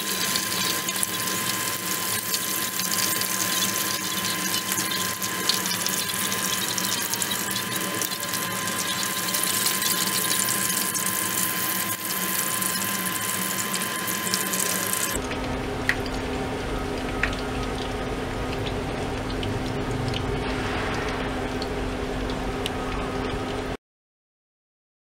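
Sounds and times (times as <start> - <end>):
thin high tone: 0.0 - 15.2
deep-frying sizzle: 0.0 - 23.8.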